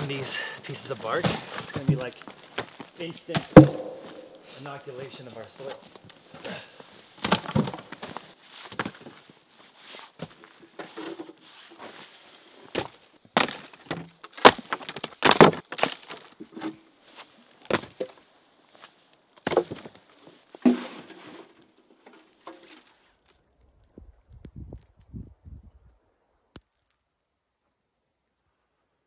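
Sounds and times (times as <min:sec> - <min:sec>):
wood chunks landing in wooden bed: 0:01.2 - 0:04.4, 0:07.2 - 0:09.1, 0:12.7 - 0:16.8, 0:17.6 - 0:18.2, 0:19.4 - 0:20.0.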